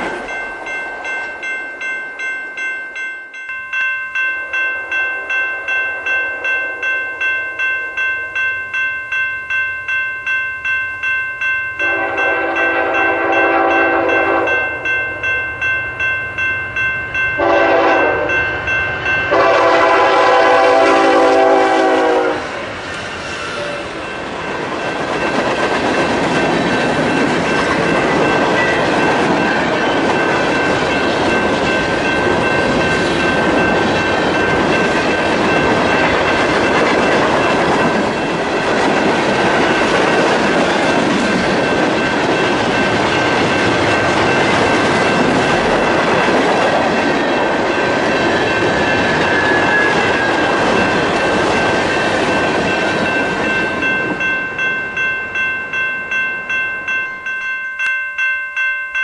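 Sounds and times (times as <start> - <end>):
train wheels clacking on rails: 0.0 - 2.7, 16.0 - 57.5
bell ringing: 0.0 - 19.9, 23.1 - 59.0
train air horn blasts: 11.8 - 14.6, 17.4 - 18.4, 19.3 - 22.6.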